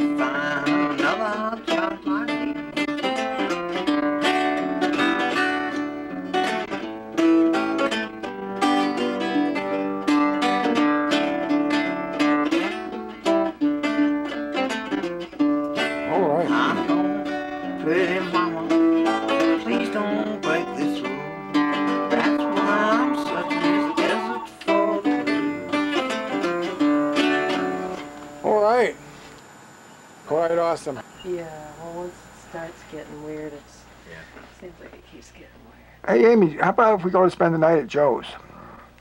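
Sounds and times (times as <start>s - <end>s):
fingerstyle acoustic guitar: 0.0s - 29.3s.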